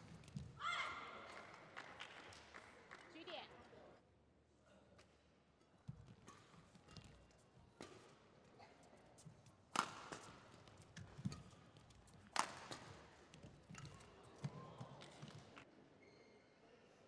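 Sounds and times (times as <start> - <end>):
rackets smacking shuttlecock: 6.1 - 8.2, 9.7 - 15.4.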